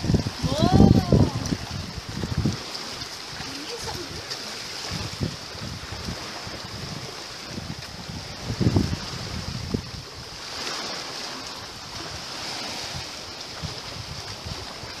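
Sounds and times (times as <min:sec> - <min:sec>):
small waves lapping on shore: 0:00.0 - 0:15.0
wind on microphone: 0:00.0 - 0:15.0.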